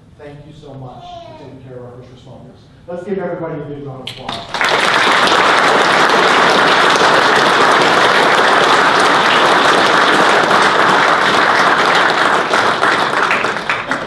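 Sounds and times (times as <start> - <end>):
crowd applauding: 4.2 - 14.0.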